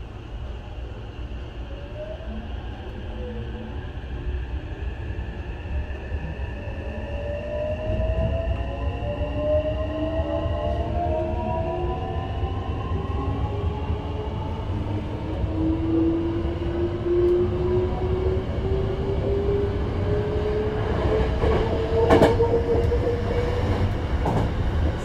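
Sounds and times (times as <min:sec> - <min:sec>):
train running rumble: 0:15.2 - 0:25.0.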